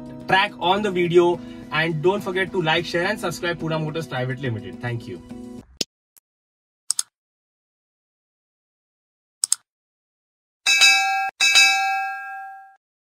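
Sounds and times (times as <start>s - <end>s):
double mouse click: 6.9s - 7.1s, 9.4s - 9.6s
notification bell ding: 10.7s - 12.8s.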